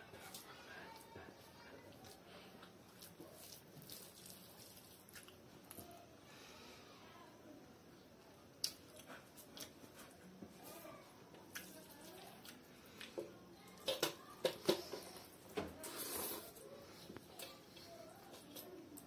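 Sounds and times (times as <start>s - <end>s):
wet squishing of rice: 0.0s - 6.2s, 8.5s - 19.0s
chewing: 0.1s - 5.9s, 8.6s - 10.2s, 11.4s - 14.1s, 15.1s - 19.0s.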